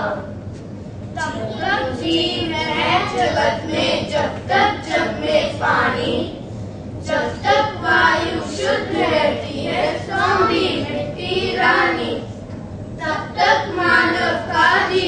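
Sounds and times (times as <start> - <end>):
children singing into microphones: 7.1 - 12.2, 13.0 - 15.0.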